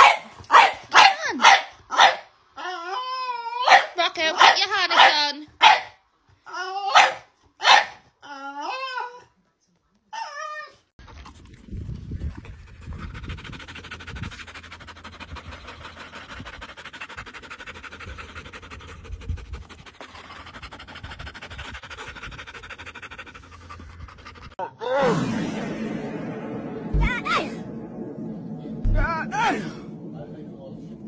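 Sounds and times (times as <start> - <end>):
low rumble: 11.4 - 31.0
puppy panting: 12.2 - 24.6.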